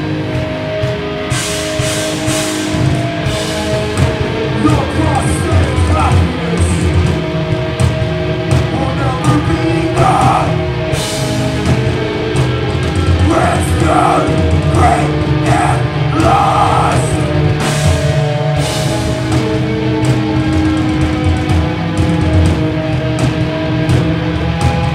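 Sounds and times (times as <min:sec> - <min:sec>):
rock band playing live: 0:00.0 - 0:24.9
person singing short phrases: 0:13.2 - 0:17.2.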